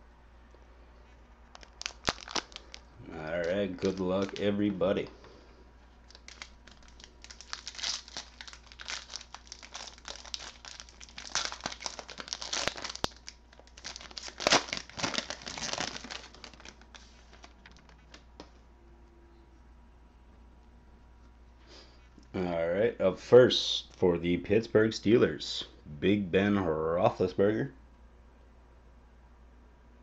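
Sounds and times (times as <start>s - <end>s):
wrapper crinkling and tearing: 1.5s - 4.8s, 6.0s - 18.4s.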